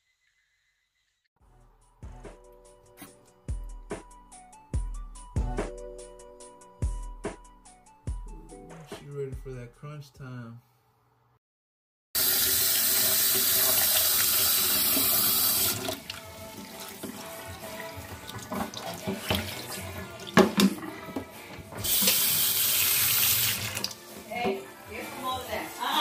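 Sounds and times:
water splashing: 12.5s - 20.7s
plastic tub knocking in sink: 18.4s - 22.2s.

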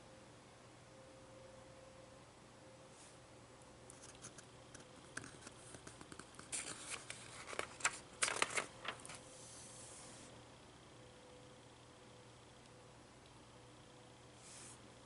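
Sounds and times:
page flapping being flipped: 5.2s - 9.2s
magazine page rustling: 6.4s - 9.2s.

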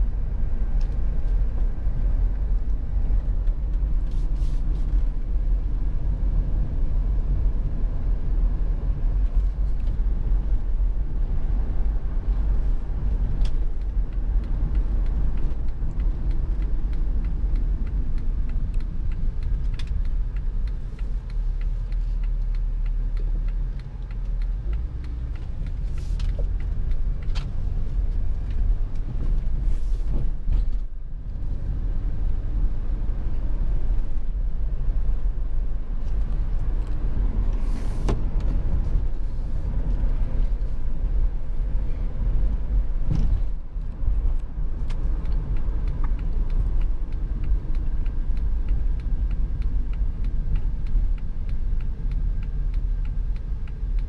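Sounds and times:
engine and road noise rumble: 0.0s - 54.0s.

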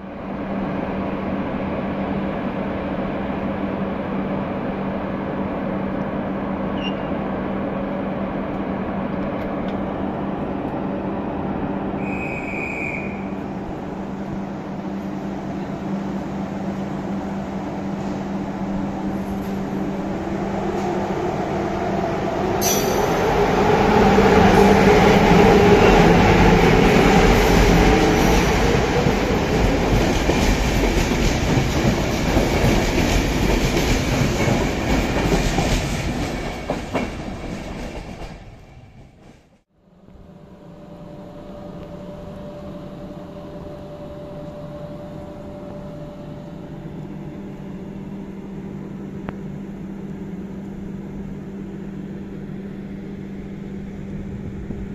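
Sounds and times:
electric locomotive humming: 0.0s - 54.9s
train wheels rumbling on rails: 8.4s - 39.6s.

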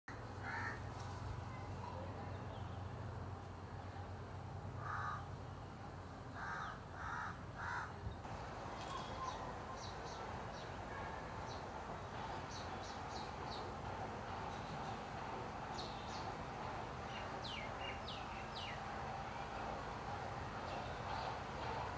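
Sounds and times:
crow cawing: 0.4s - 0.8s, 4.8s - 5.2s, 6.4s - 7.9s.

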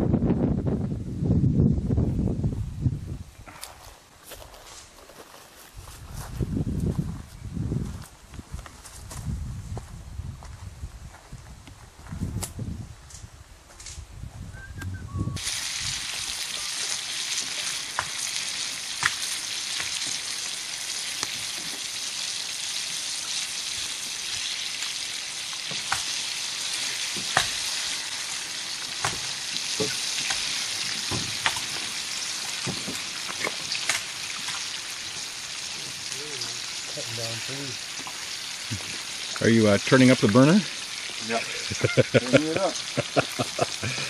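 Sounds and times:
food sizzling in a frying pan: 15.4s - 44.0s.

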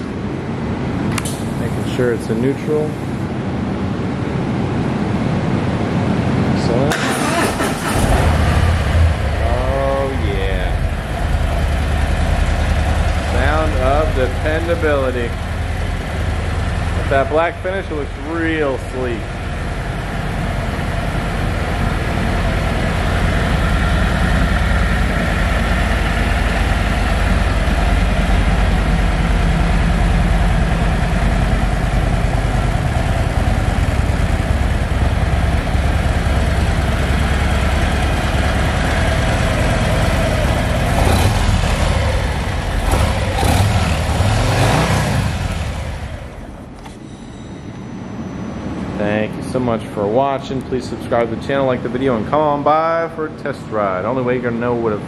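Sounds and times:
motorcycle engine idling and revving: 6.9s - 47.2s.

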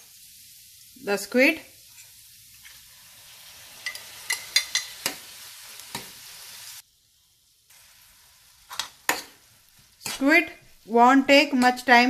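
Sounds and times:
food sizzling in a pan: 0.0s - 12.0s
metal spoon clinking on dishes: 3.8s - 5.2s.

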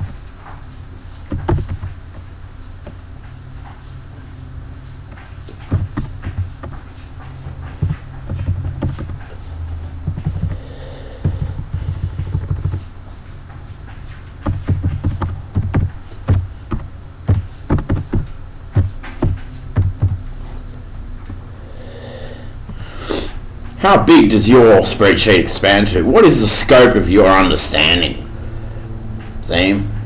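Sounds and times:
keyboard typing: 1.3s - 2.0s, 5.5s - 6.8s, 7.4s - 9.4s, 10.0s - 10.6s, 11.2s - 12.9s, 14.4s - 20.2s.

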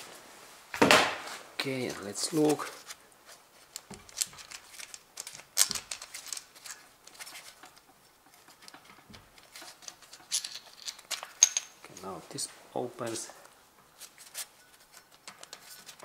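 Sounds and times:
metal bolts clicking and tapping: 7.6s - 11.8s.

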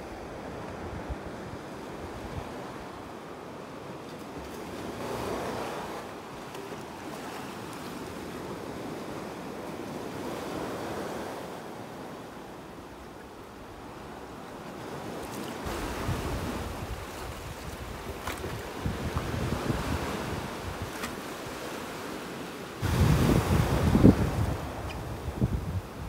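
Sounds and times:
waves washing over rocky shore: 13.8s - 26.0s
wind buffeting microphone: 15.6s - 21.0s, 22.8s - 26.0s.

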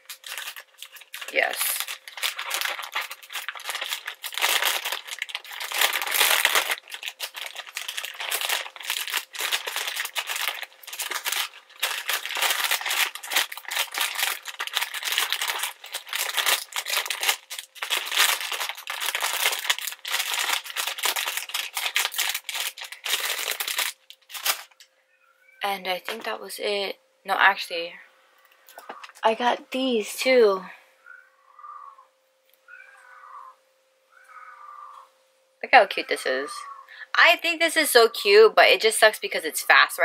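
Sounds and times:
plastic packaging crinkling: 0.0s - 24.9s.

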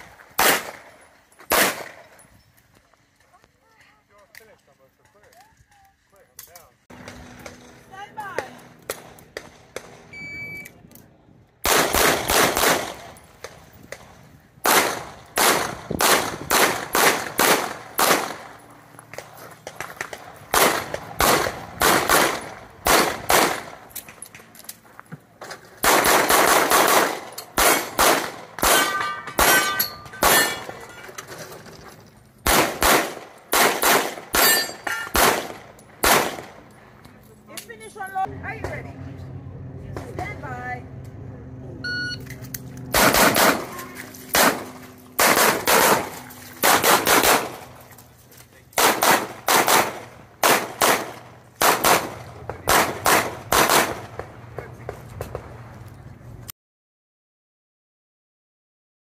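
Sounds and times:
handgun shots: 1.5s - 2.0s, 25.8s - 30.7s, 32.5s - 36.5s, 42.9s - 47.6s, 48.8s - 52.1s
shot timer beep: 10.1s - 10.8s, 41.8s - 42.2s
steel targets ringing: 28.6s - 31.2s, 34.4s - 35.2s.

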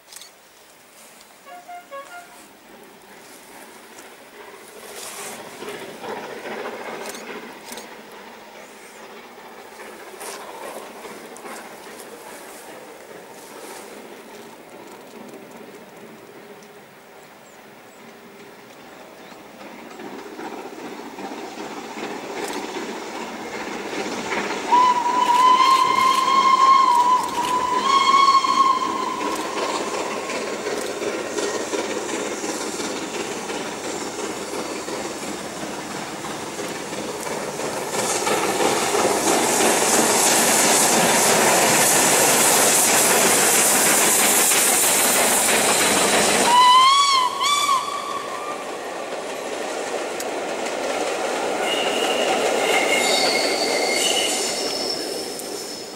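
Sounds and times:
steam train approaching: 0.0s - 55.9s
loud hiss of escaping steam: 0.4s - 15.3s, 16.0s - 55.9s
steam whistle blasts: 1.4s - 2.5s, 24.7s - 30.2s, 46.4s - 48.6s, 51.6s - 55.0s.

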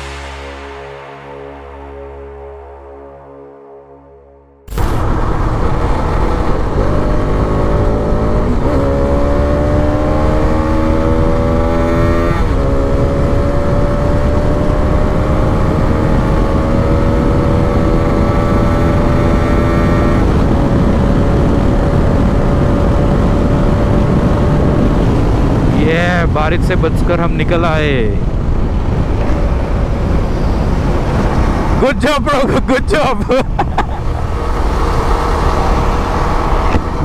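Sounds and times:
motorcycle engine accelerating: 0.0s - 25.8s, 33.3s - 37.0s
wind rumble on microphone: 4.7s - 27.2s, 28.0s - 31.8s.

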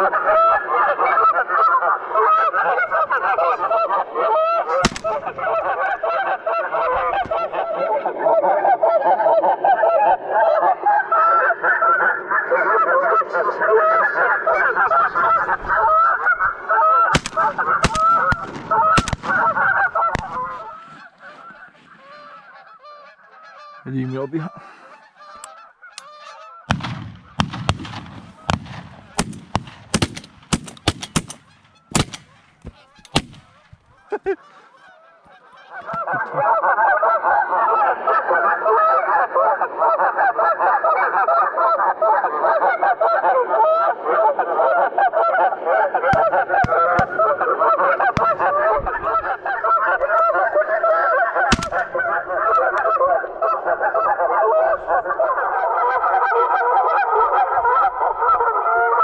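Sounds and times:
flock of geese honking: 0.0s - 29.6s, 30.2s - 59.0s.

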